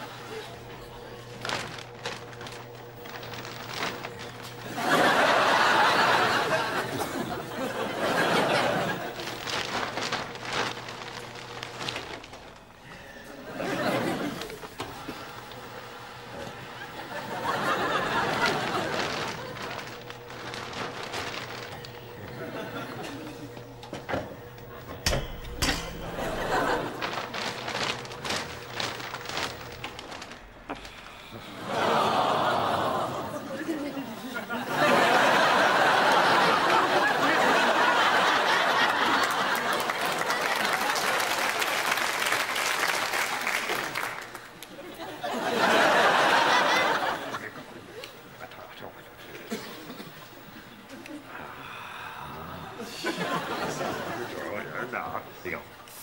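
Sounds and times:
plastic bin bag rustling: 0:00.9 - 0:05.6, 0:06.3 - 0:12.8, 0:16.8 - 0:31.2
studio audience laughing: 0:03.8 - 0:09.7, 0:13.3 - 0:20.2, 0:21.2 - 0:24.9, 0:26.0 - 0:27.6, 0:30.6 - 0:42.2, 0:43.8 - 0:48.6, 0:52.6 - 0:55.1.

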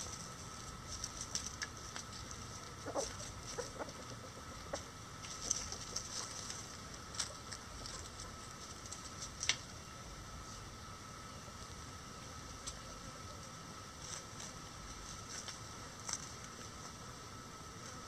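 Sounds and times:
chickens pecking and rustling: 0:00.0 - 0:17.1
chickens clucking: 0:01.6 - 0:08.7.

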